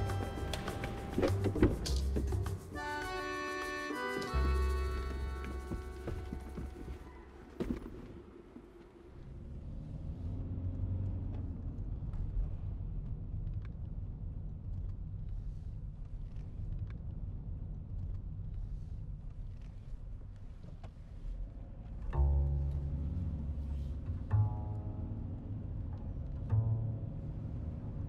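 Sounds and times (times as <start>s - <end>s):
car engine and tyres rumbling: 0.0s - 28.0s
low bowed-string music note: 22.0s - 28.0s.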